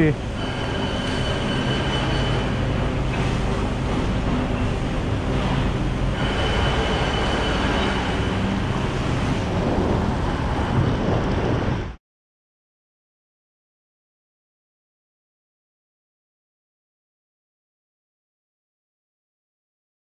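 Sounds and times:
road rumble: 0.0 - 12.0
vehicle engine running: 0.1 - 9.6.

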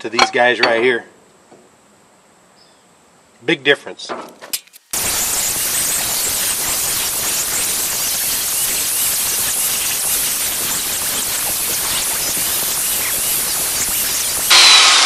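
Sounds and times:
angle grinder wire wheel whirring: 5.0 - 15.0.

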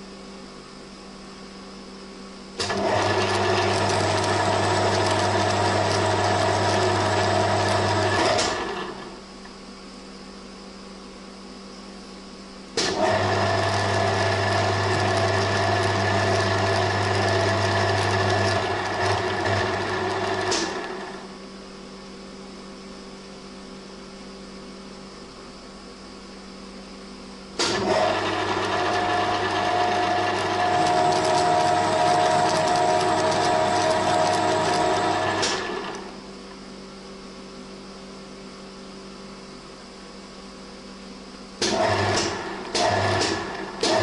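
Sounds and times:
lathe motor humming: 2.6 - 9.1, 12.9 - 21.3, 27.7 - 36.2, 41.6 - 44.0.

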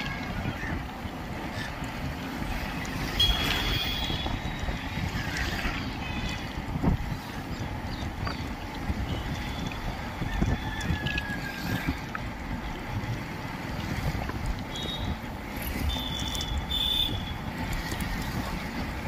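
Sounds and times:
wind and road rumble: 0.0 - 19.0
vehicle horn beeps: 3.1 - 4.4, 14.7 - 15.2, 15.8 - 17.4.

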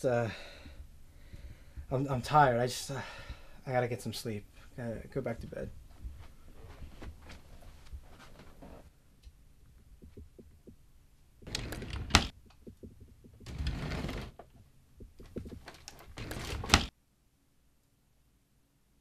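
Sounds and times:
desk drawer sliding open and shut: 11.4 - 12.3, 13.4 - 14.4, 15.3 - 16.9.

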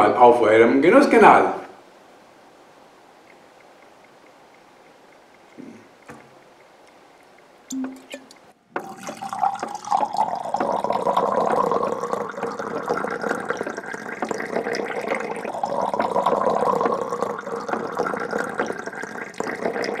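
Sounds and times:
liquid pouring and splashing: 7.7 - 20.0.

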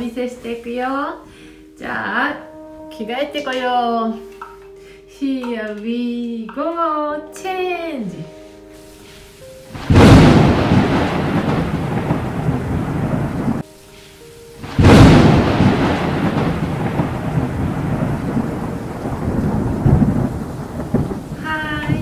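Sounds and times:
rain: 8.8 - 22.0
thunder rumbling: 9.7 - 13.6, 14.6 - 22.0.

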